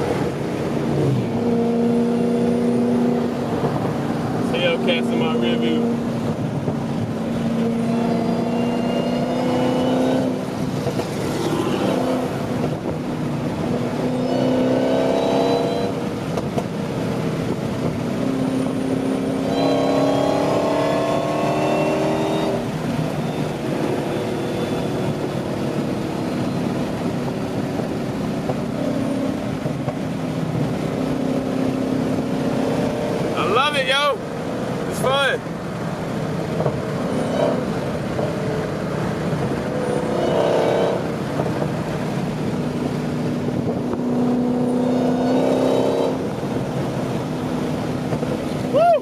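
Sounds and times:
car engine accelerating: 0.0s - 49.0s.

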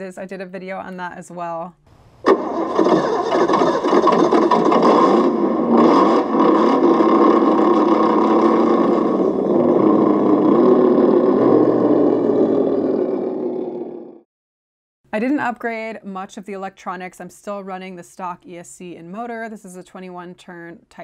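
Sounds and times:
simulated engine through small speaker: 2.6s - 14.2s.

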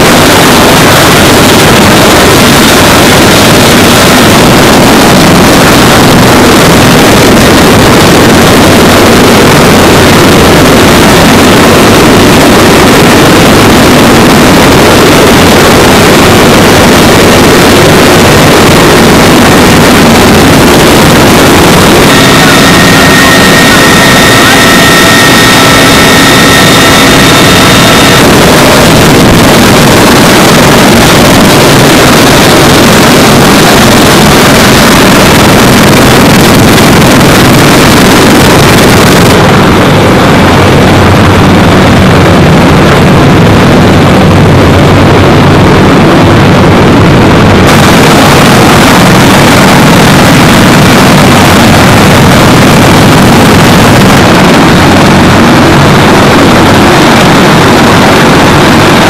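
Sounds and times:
helicopter rotor and turbine: 0.0s - 59.0s
high turbine whine: 0.0s - 59.0s.

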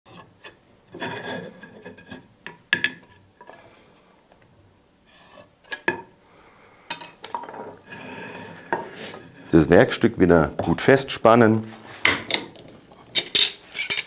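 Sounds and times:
faint scraping: 7.6s - 10.1s.

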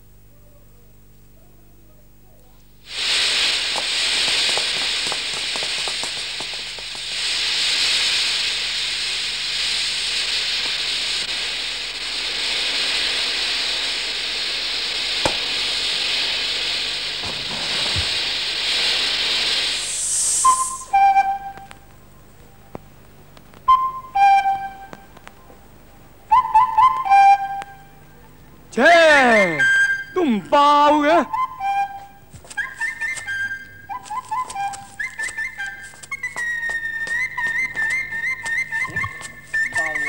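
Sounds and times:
gunpowder fuse fizzing: 2.8s - 22.0s, 34.0s - 40.0s.

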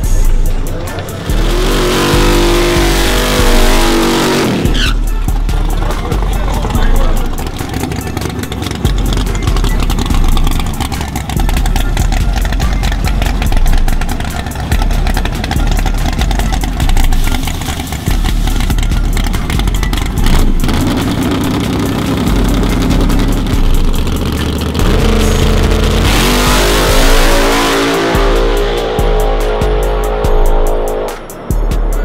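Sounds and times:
drag car engine revving: 0.0s - 31.5s.

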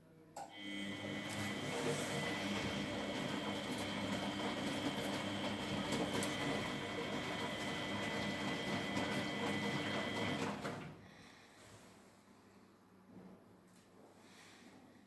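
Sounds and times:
washing machine motor whine: 0.4s - 11.0s.

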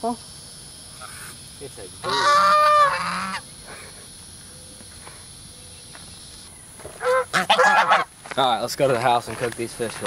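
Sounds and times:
faint short goose calls: 2.0s - 3.4s, 7.0s - 8.1s
goose honking: 2.0s - 3.4s, 7.0s - 8.1s.

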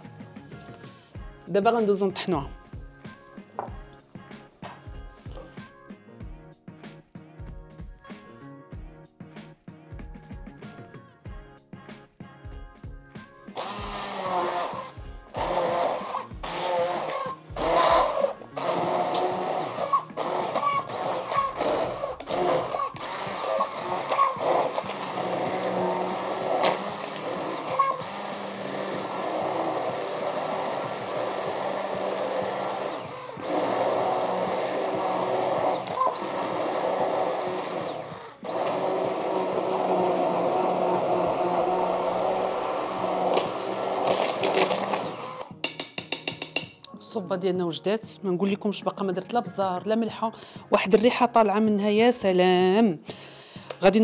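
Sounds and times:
immersion blender pureeing soup: 13.5s - 45.6s.

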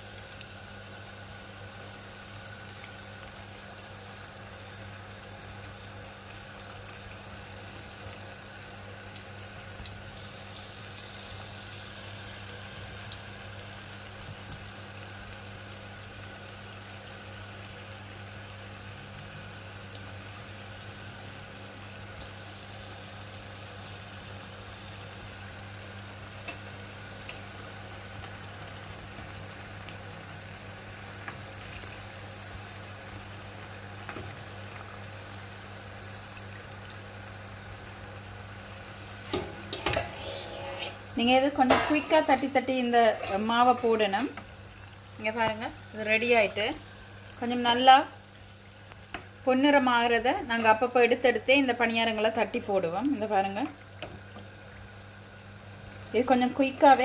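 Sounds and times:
dough deep-frying in hot oil: 0.0s - 57.0s
oil popping and crackling: 0.3s - 15.5s, 25.2s - 40.1s.

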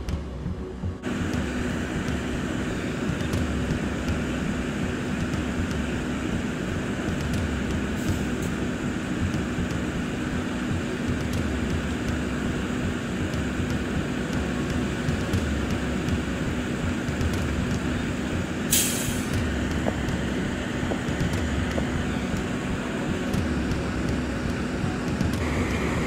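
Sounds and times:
highway traffic rumble: 0.0s - 26.0s
vehicle engines idling: 0.0s - 26.0s
short sharp hiss: 18.7s - 19.4s.

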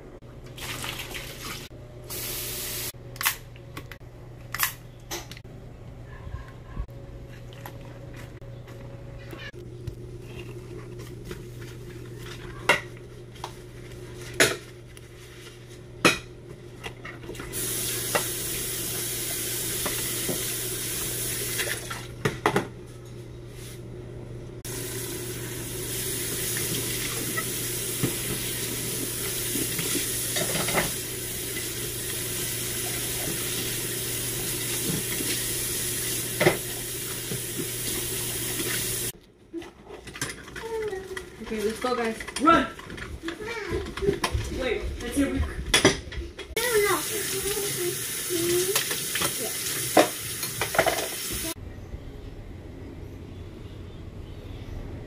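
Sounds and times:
tap water running: 0.4s - 3.0s, 17.2s - 22.2s, 24.6s - 39.2s, 46.5s - 51.6s
dishes clinking in sink: 29.7s - 31.0s, 48.8s - 51.4s.

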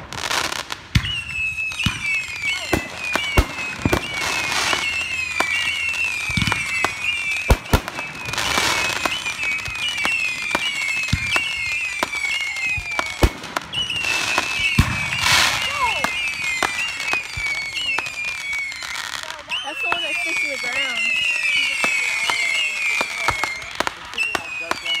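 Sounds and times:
firework shells booming: 0.0s - 18.7s
falling firework whistles: 0.0s - 25.0s
hissing firework crackle: 0.0s - 25.0s.

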